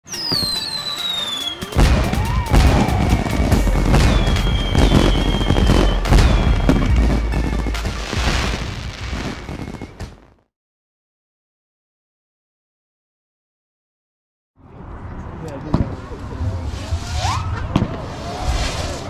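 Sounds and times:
falling whistles: 0:00.1 - 0:07.0
firework booms and bangs: 0:00.2 - 0:10.4, 0:17.6 - 0:18.8.

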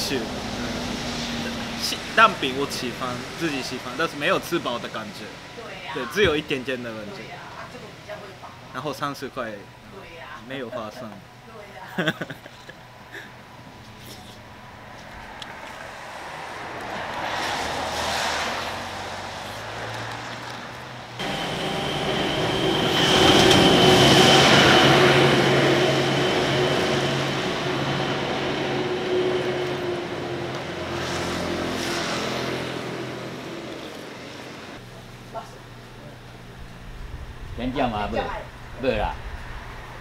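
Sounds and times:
heavy vehicle engine hum: 0:00.0 - 0:03.8, 0:13.4 - 0:35.0
tyres hissing on wet road: 0:00.0 - 0:05.6, 0:15.8 - 0:34.8
high whine: 0:21.0 - 0:35.0.

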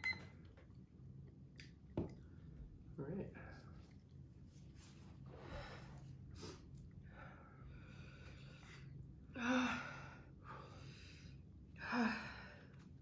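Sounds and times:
person breathing heavily: 0:05.2 - 0:13.0.

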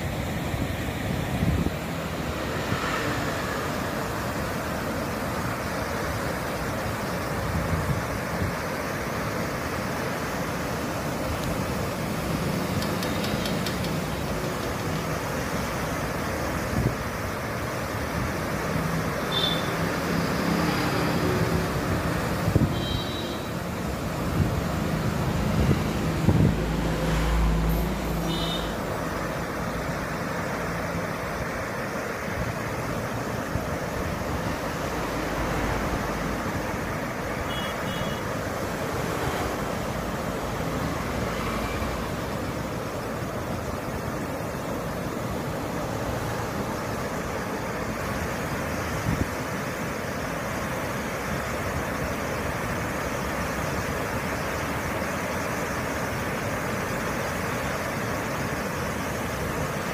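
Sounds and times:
river water pouring over weir: 0:00.0 - 0:59.9
low engine hum: 0:23.6 - 0:49.0
wind on microphone: 0:24.3 - 0:26.8.

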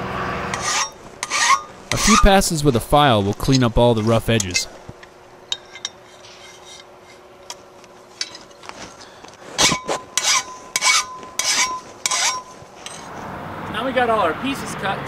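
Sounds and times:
hand file rasping on metal: 0:00.5 - 0:02.6, 0:05.6 - 0:07.3, 0:09.6 - 0:13.0.

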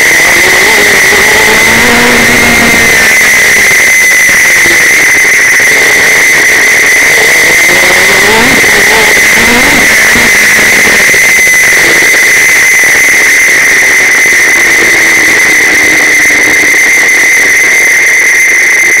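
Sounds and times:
racing car engine at low revs: 0:00.0 - 0:18.1
loud high-pitched whine: 0:00.0 - 0:19.0.

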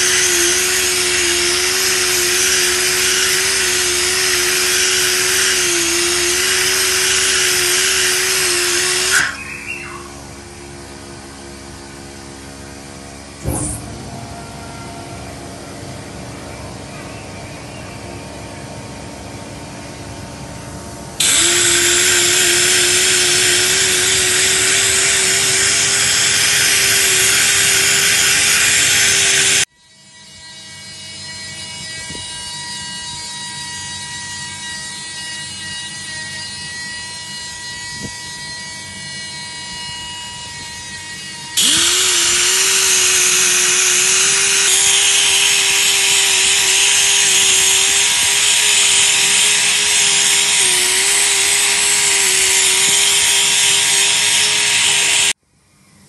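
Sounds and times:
powered polishing tool hissing: 0:00.0 - 0:12.5, 0:21.2 - 0:29.7, 0:34.3 - 0:55.4
steady motor hum: 0:00.0 - 0:55.4.

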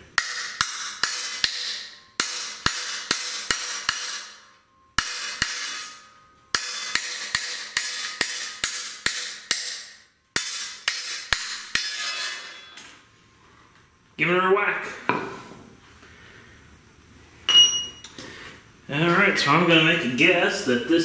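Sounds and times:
hammer striking metal punch: 0:00.1 - 0:12.9.

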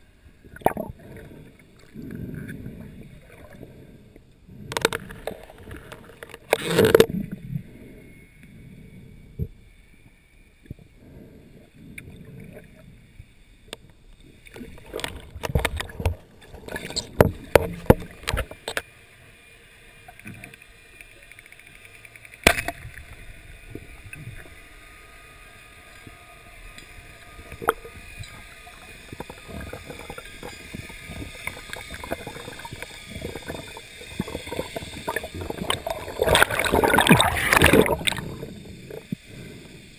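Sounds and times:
muffled underwater water movement: 0:00.0 - 0:39.9
diving gear clicks and knocks: 0:14.6 - 0:18.9.

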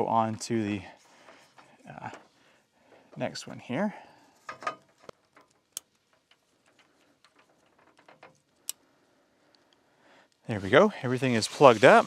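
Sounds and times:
cable handling: 0:04.3 - 0:08.8.

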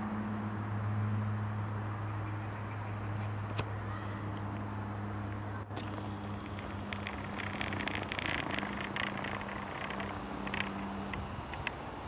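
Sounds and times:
propeller plane droning overhead: 0:00.0 - 0:12.0.

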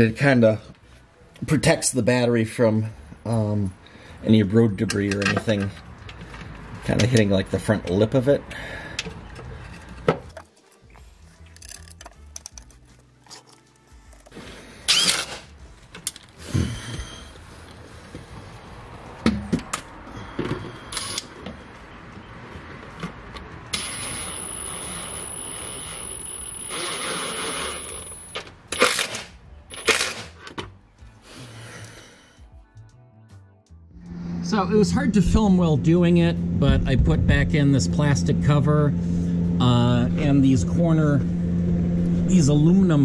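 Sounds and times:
power tool whining: 0:14.3 - 0:15.5, 0:23.7 - 0:30.1.

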